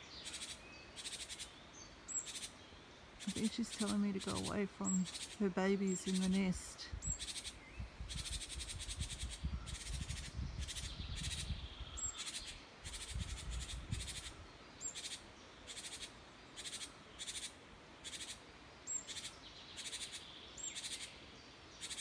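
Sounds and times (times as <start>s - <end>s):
bird giving buzzy churring calls: 3.2s - 9.9s.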